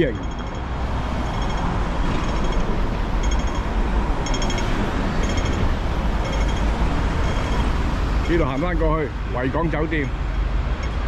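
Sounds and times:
pedestrian crossing signal beeping: 0.0s - 8.9s
traffic rumble: 0.0s - 11.0s.

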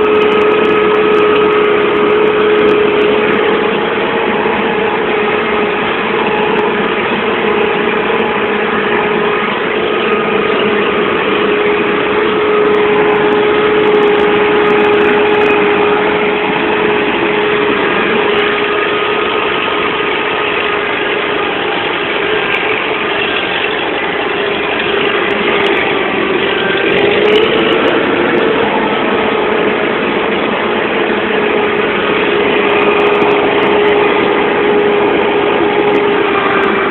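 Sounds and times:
tractor diesel engine running: 0.0s - 36.9s.

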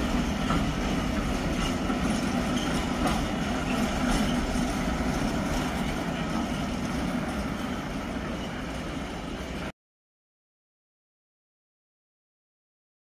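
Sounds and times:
rail wagon wheels on track: 0.0s - 9.7s.

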